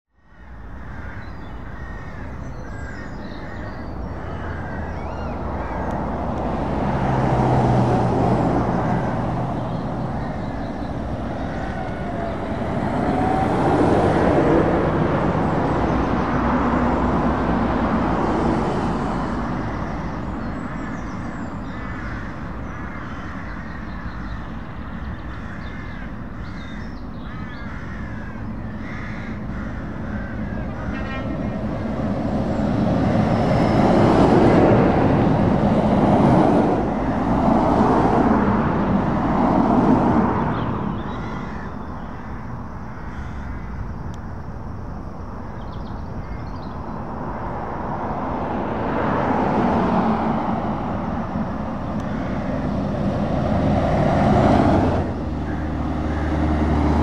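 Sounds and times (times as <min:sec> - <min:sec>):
birds calling: 0:00.2 - 0:44.4, 0:45.4 - 0:47.2, 0:49.1 - 0:57.0
cars and lorries driving past: 0:00.2 - 0:57.0.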